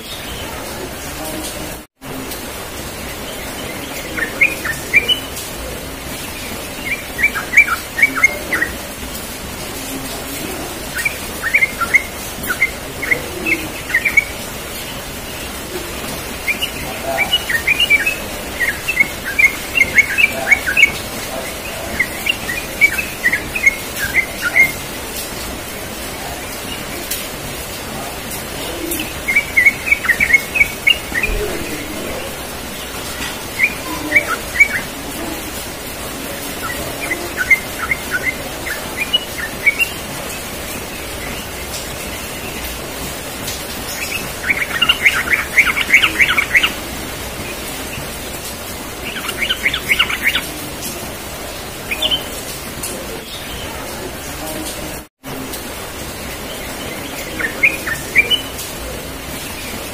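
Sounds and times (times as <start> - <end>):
bird chirping: 0.0 - 54.7, 55.5 - 59.9.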